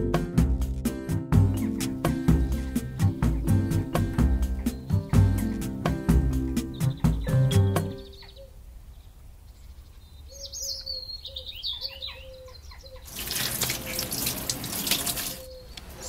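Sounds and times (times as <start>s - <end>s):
faint bird chirps: 6.6s - 13.1s, 14.9s - 16.0s
tap water running into sink: 13.1s - 15.5s.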